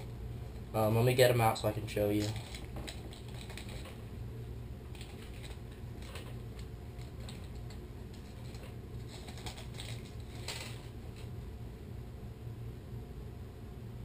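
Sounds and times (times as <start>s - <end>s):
steady low hum: 0.0s - 14.0s
plastic package crinkling: 2.1s - 4.0s, 4.9s - 11.3s.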